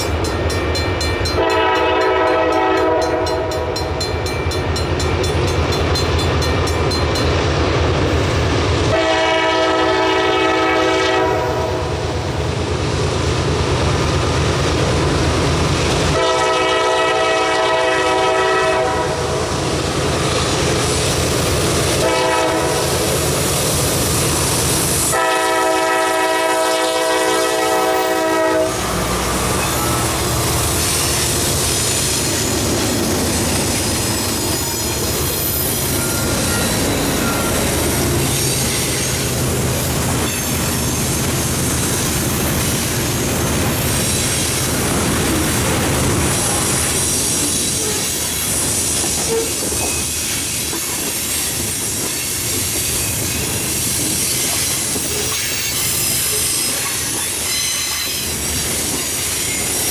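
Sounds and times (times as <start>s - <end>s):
diesel locomotive engine rumble: 0.0s - 59.9s
locomotive air horn: 1.4s - 4.0s, 8.9s - 12.1s, 16.1s - 19.5s, 22.0s - 23.1s, 25.0s - 31.3s
train wheels clacking over rail joints: 28.1s - 59.9s.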